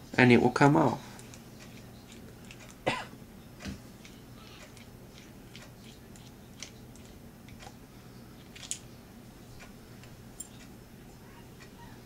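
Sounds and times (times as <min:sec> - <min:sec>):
low steady hum: 0:00.0 - 0:12.0
small metal parts clicking: 0:08.4 - 0:08.9.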